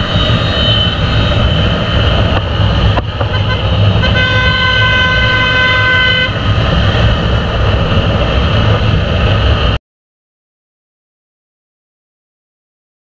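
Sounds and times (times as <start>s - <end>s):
motorcycle engine rumble: 0.0s - 9.8s
wind rush: 0.0s - 9.8s
vehicle horn: 0.1s - 1.4s, 3.2s - 6.4s.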